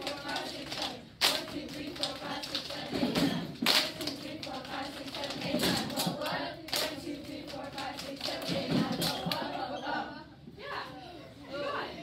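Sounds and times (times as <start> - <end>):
children clapping: 0.0 - 9.5
children singing together: 0.0 - 10.4.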